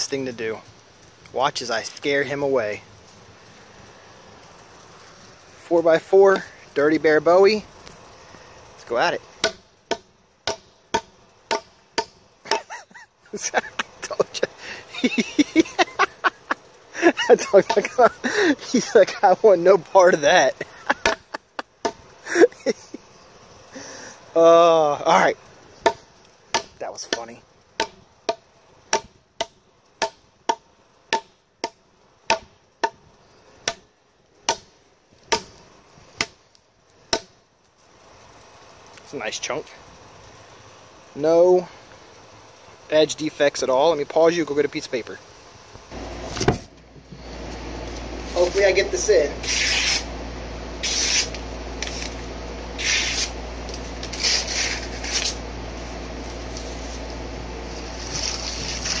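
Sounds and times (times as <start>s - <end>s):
knife chopping into wood: 9.4s - 12.6s, 21.0s - 21.2s, 25.8s - 33.0s, 33.6s - 33.9s, 34.5s - 34.7s, 35.3s - 35.6s, 37.1s - 37.3s
knife slicing paper: 49.3s - 50.1s, 50.8s - 52.2s, 52.8s - 53.4s, 54.0s - 55.4s, 57.8s - 59.0s.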